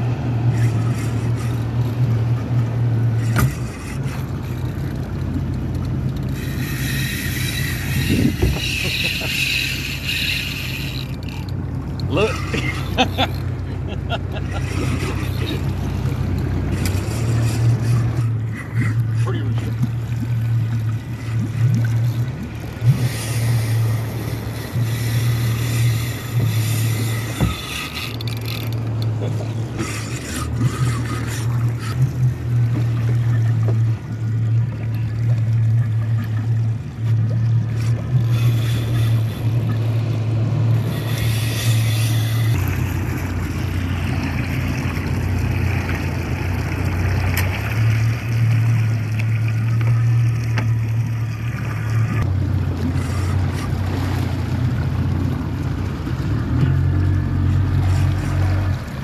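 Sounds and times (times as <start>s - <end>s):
boat motor humming: 0.0s - 59.0s
water rushing past hull: 0.0s - 59.0s.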